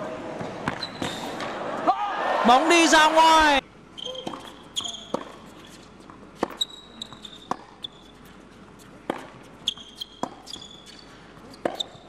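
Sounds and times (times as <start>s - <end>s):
tennis shoes squeaking on court: 0.4s - 1.5s, 3.9s - 12.0s
tennis ball bouncing and struck: 4.0s - 8.1s, 8.9s - 12.0s.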